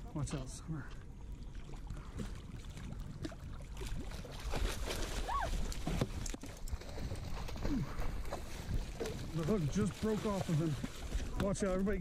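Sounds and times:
shark thrashing and splashing: 3.2 - 11.5.

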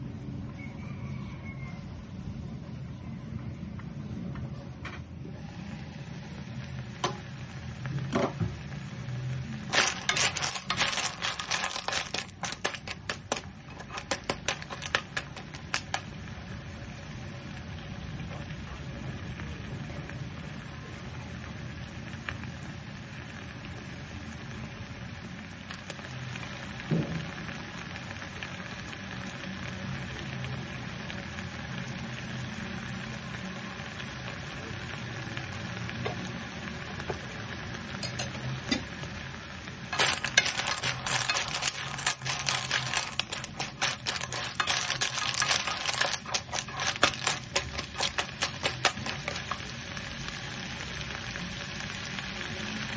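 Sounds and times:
snails sizzling in a frying pan: 5.2 - 52.9
shells clattering against pan: 9.7 - 16.1, 39.9 - 49.7.

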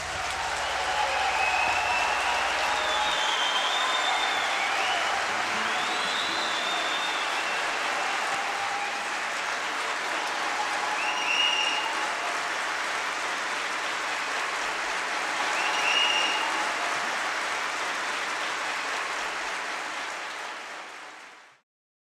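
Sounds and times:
audience applauding: 0.0 - 21.6
high whistle: 0.6 - 9.0, 10.9 - 12.0, 15.5 - 16.6.

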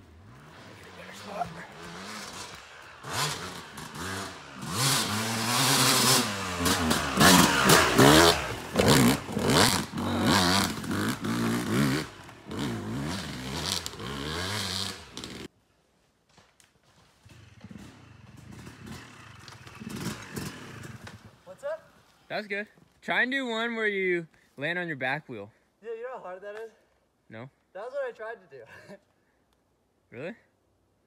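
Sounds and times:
dirt bike engine revving: 0.1 - 15.5, 17.3 - 21.3.

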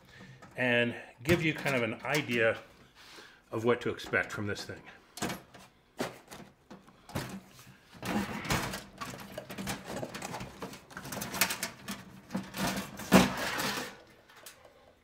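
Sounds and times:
sheet metal clicks and rattles: 1.3 - 2.6, 5.2 - 14.6.

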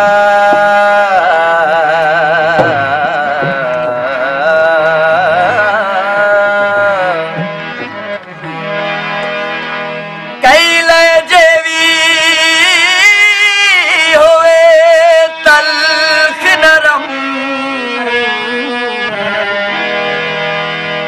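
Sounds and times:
man singing long wavering notes: 0.0 - 7.4
instrumental accompaniment: 0.0 - 21.0.

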